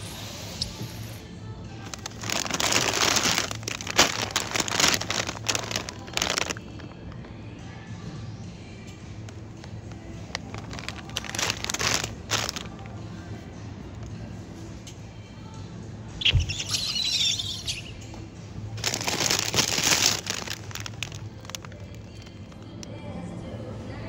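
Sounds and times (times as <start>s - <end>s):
soft background music: 0.0s - 24.0s
plastic bags crinkling: 1.8s - 7.3s, 9.6s - 13.0s, 18.7s - 22.8s.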